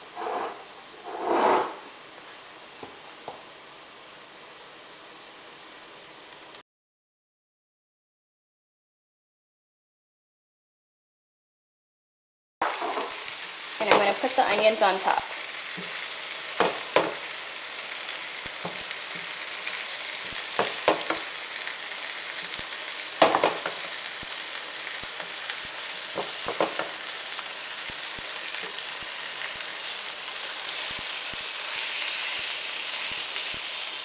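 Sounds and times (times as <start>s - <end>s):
spatula scraping and knocking pan: 0.0s - 1.8s, 12.6s - 13.2s, 15.7s - 17.3s, 20.2s - 21.3s, 23.2s - 23.9s, 26.1s - 27.0s
oil sizzling in a frying pan: 0.0s - 6.6s, 12.6s - 34.0s.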